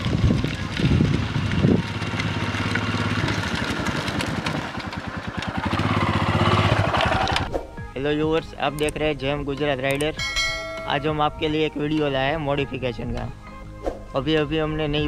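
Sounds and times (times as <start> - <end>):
motorcycle engine at low revs: 0.0 - 7.5.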